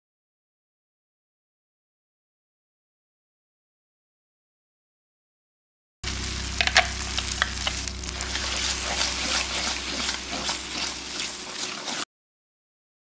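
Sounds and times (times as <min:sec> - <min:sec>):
low hum: 0:06.0 - 0:11.7
lentils bubbling and sizzling: 0:06.0 - 0:12.1.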